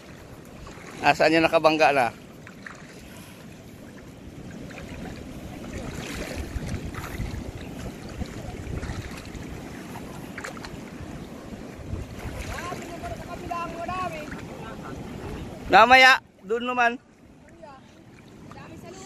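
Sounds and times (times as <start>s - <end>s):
water sloshing and splashing: 0.0s - 19.0s
wind buffeting microphone: 3.7s - 15.8s.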